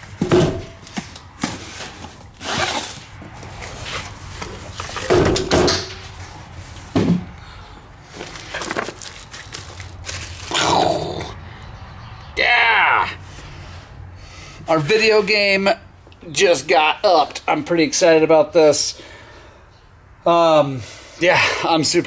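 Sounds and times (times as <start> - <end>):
cardboard box ripping and scraping: 1.4 - 5.1.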